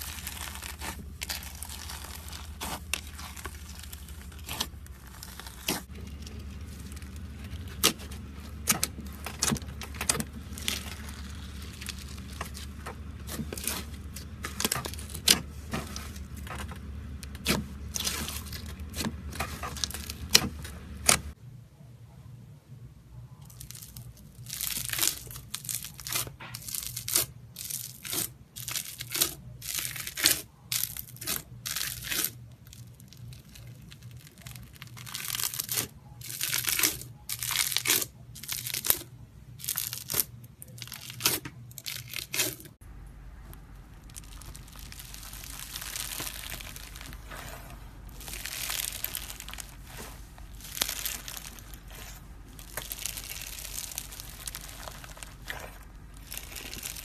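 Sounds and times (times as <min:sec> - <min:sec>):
foam bead slime crunching: 0:00.0 - 0:21.4, 0:23.3 - 0:57.0.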